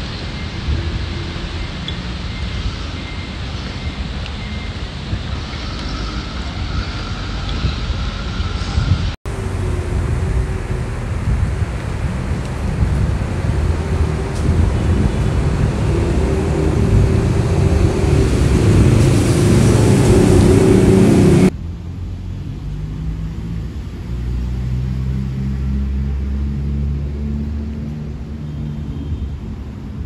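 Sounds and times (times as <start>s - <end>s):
wind buffeting microphone: 0.0s - 21.6s
steady low rumble: 5.1s - 30.0s.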